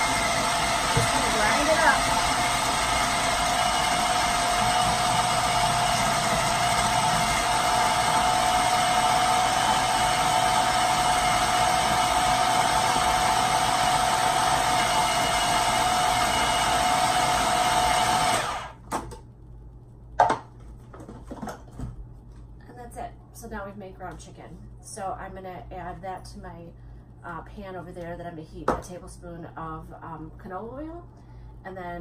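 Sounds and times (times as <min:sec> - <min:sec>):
food processor whining motor: 0:00.0 - 0:18.8.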